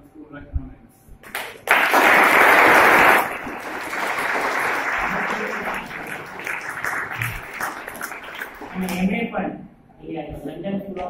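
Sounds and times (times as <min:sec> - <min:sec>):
girls applauding: 0:01.2 - 0:09.1.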